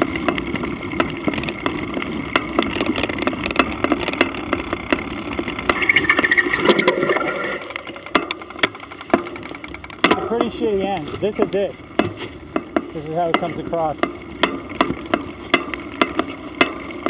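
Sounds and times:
mountain bike rattling over grass: 0.0 - 17.0
wavering whine: 1.8 - 10.5.

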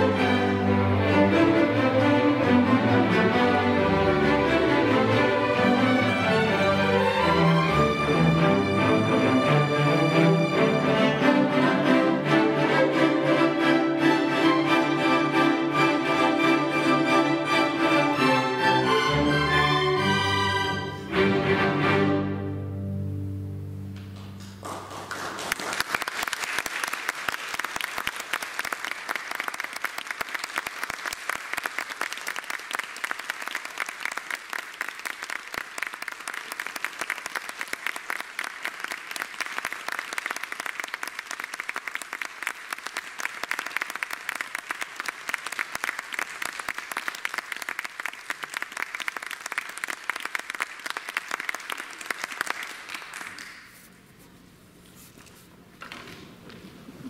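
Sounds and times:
string orchestra chord: 0.0 - 24.0
audience applauding: 24.0 - 53.9.

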